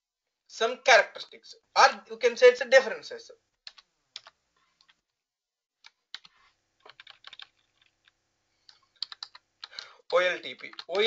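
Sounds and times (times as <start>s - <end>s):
computer keyboard typing: 3.6s - 5.0s, 5.8s - 8.0s, 8.7s - 11.0s.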